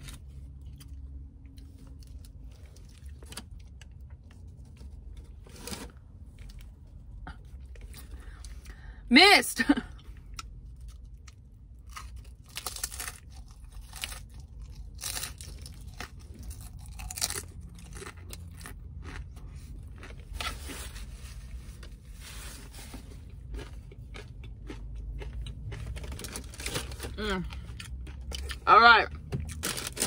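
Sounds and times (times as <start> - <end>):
crunchy taco shell chewing: 10.0 - 21.1, 23.0 - 28.6, 29.2 - 30.0.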